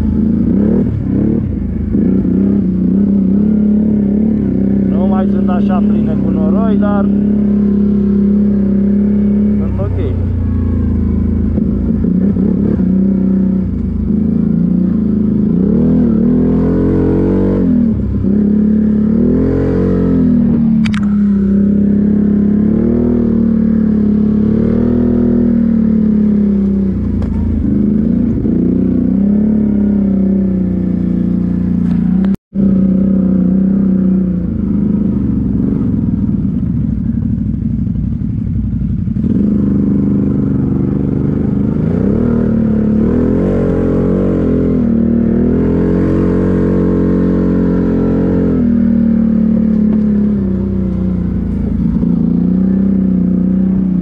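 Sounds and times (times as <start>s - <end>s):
quad bike engine revving: 0.0s - 54.0s
sharp click: 20.8s - 21.2s.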